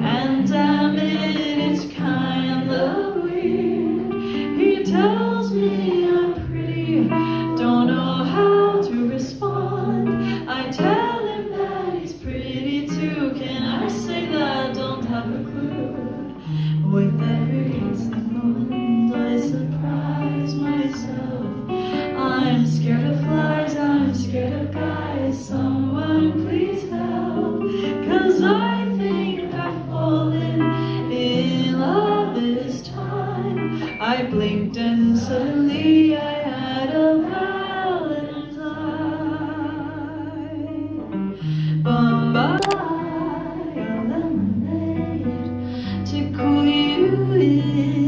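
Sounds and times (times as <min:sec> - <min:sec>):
guitar accompaniment: 0:00.0 - 0:48.0
woman singing jazzy song: 0:00.0 - 0:48.0.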